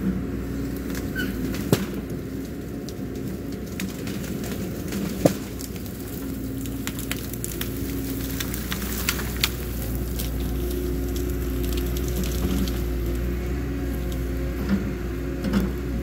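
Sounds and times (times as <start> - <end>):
diesel engine running under load: 0.0 - 16.0
branches snapping and crackling: 0.6 - 16.0.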